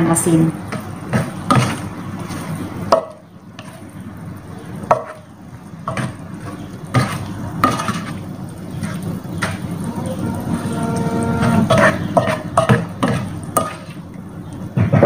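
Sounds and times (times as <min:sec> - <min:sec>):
steady low hum: 0:06.6 - 0:14.5
spatula scraping a pan: 0:06.9 - 0:08.2, 0:08.8 - 0:14.0.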